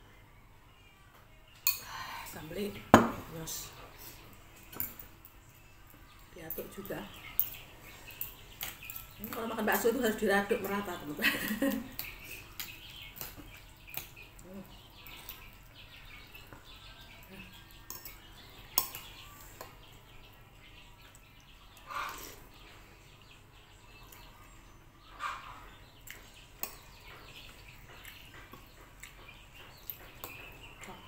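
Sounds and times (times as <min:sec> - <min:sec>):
spoon and fork clinking on plate: 0:17.9 - 0:18.2.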